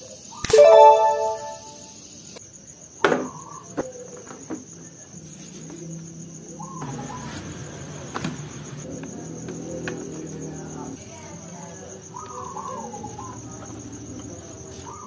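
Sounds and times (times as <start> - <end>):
insects chirring: 0.0 - 15.0
bell-like chime: 0.5 - 1.8.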